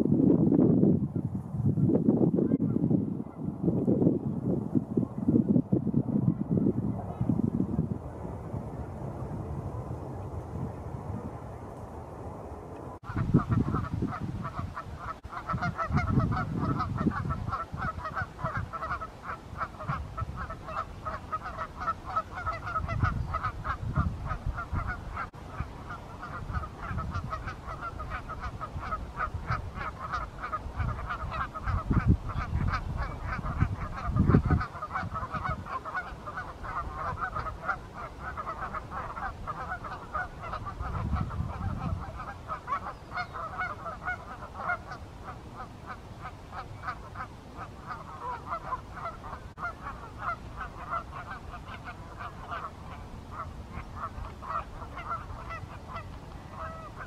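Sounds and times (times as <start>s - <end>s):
wind rumbling on microphone: 0.0s - 57.0s
geese honking: 13.1s - 57.0s.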